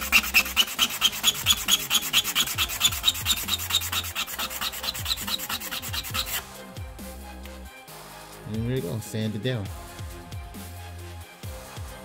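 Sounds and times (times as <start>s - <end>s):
wood scrubbing on sandpaper: 0.0s - 6.4s.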